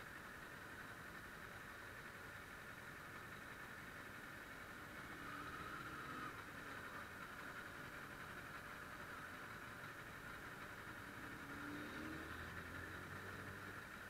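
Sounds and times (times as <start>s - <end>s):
motorcycle engine idling: 0.0s - 14.0s.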